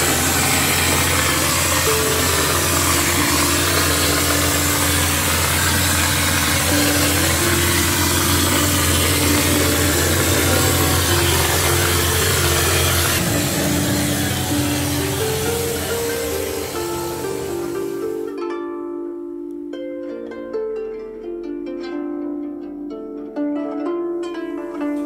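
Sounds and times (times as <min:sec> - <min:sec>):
spray gun hiss: 0:00.0 - 0:18.3
low machine hum: 0:00.0 - 0:18.4.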